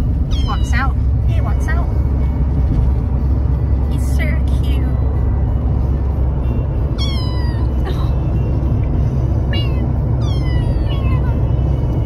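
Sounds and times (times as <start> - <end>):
car rumbling on road: 0.0 - 12.0
kitten meowing: 0.3 - 0.8, 7.0 - 7.8, 9.5 - 11.5.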